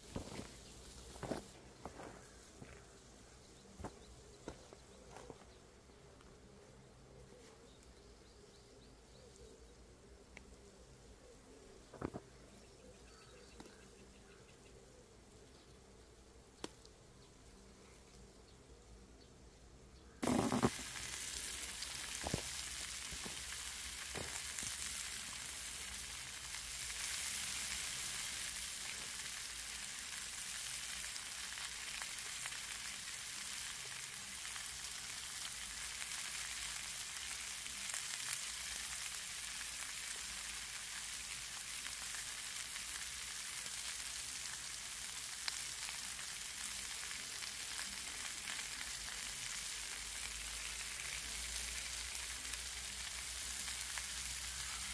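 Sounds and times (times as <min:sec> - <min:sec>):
meat sizzling on griddle: 0:00.0 - 0:02.0, 0:20.2 - 0:54.9.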